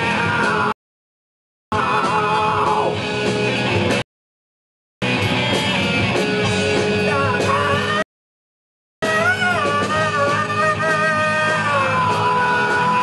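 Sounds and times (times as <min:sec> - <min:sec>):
bass: 0:00.0 - 0:00.8, 0:01.7 - 0:04.1, 0:05.0 - 0:08.1, 0:09.0 - 0:13.0
drums: 0:00.0 - 0:00.8, 0:01.7 - 0:04.1, 0:05.0 - 0:08.1, 0:09.0 - 0:13.0
electric guitars: 0:01.8 - 0:04.0, 0:05.0 - 0:08.0, 0:09.0 - 0:13.0.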